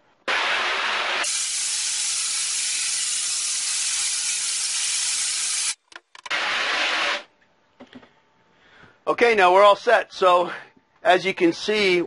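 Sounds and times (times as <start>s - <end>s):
hose spray hissing on screen: 0.3s - 5.8s.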